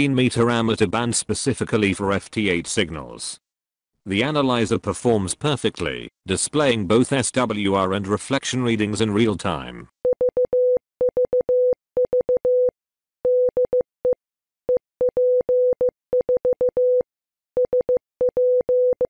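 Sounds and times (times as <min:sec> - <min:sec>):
morse code beeps: 0:10.1 - 0:17.0, 0:17.6 - 0:19.0.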